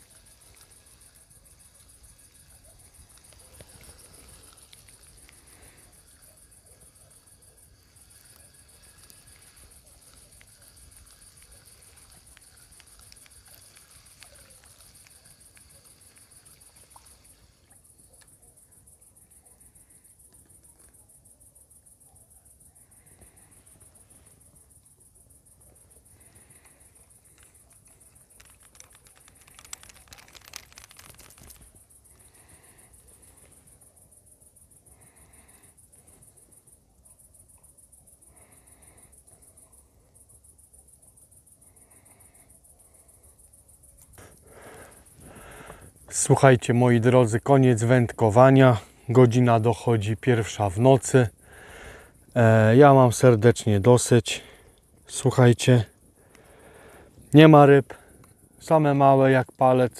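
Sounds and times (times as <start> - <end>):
insects trilling: 0.0 - 59.9
sharp clicks: 26.6 - 31.8.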